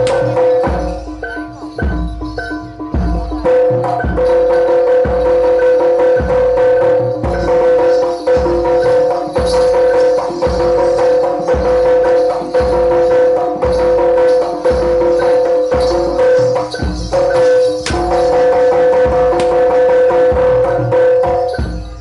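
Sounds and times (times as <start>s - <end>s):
deep drum beats: 0.0s - 22.0s
jingling clicking percussion: 0.0s - 22.0s.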